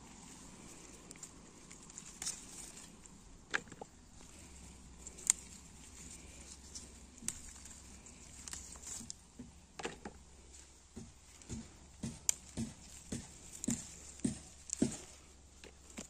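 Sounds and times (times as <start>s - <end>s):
leaves rustling against legs: 0.0s - 16.0s
footsteps on dry soil: 10.8s - 15.3s.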